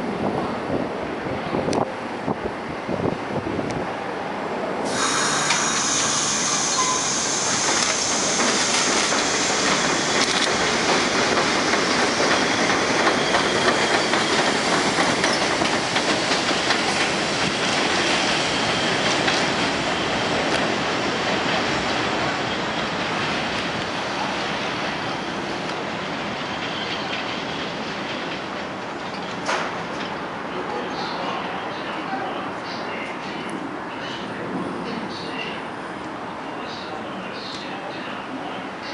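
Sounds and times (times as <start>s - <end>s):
train wheels clattering on rails: 4.9s - 24.0s, 25.6s - 30.3s.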